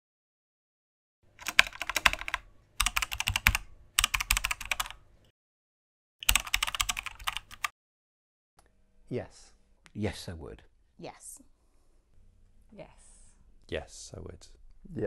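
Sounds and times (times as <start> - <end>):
keyboard typing: 1.4 - 5.0, 6.2 - 7.7.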